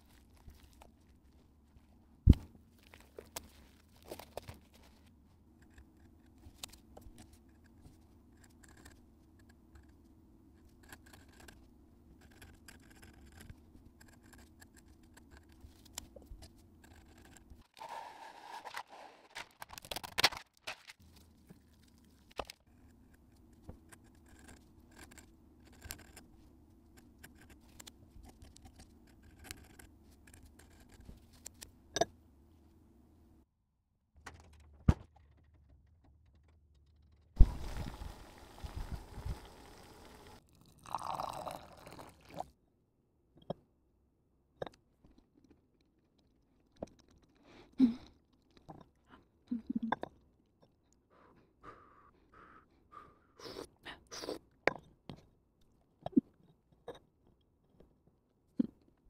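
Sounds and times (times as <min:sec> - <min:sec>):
handling clicks and scratches: 0:02.8 - 0:17.9, 0:18.6 - 0:32.1
faint steady hum: 0:37.4 - 0:42.5.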